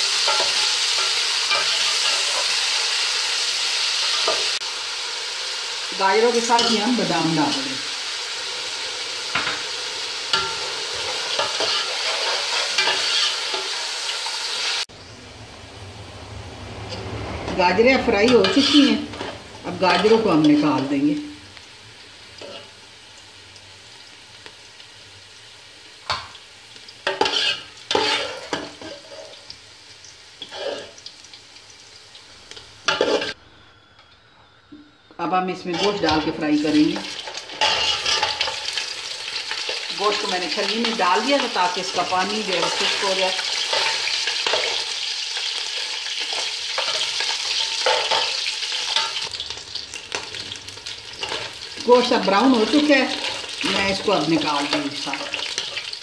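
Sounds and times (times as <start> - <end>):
vegetables sizzling in hot oil: 0.0 - 56.0
metal spoon scraping a pot: 10.3 - 13.7, 18.3 - 20.0, 27.1 - 29.4, 37.3 - 38.5.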